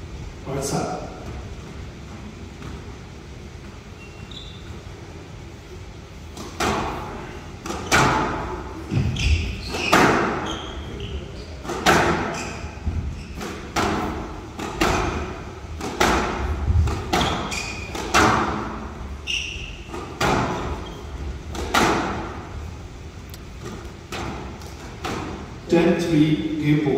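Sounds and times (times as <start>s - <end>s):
court shoes squeaking: 1.2s - 25.7s
squash ball smacking off walls: 11.7s - 12.3s, 12.9s - 18.8s, 19.9s - 20.7s, 21.5s - 22.3s.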